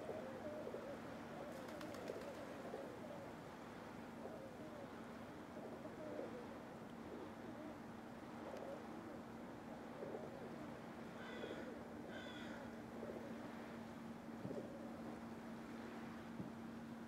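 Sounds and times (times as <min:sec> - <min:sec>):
pigeons cooing: 0:00.0 - 0:03.3, 0:04.2 - 0:09.3, 0:09.9 - 0:13.4.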